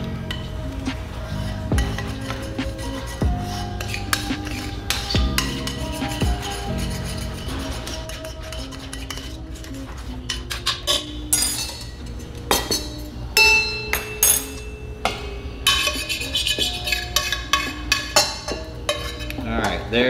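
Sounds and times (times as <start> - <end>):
background music: 0.0 - 20.0
metal spoon clinking on skillet: 10.3 - 19.8.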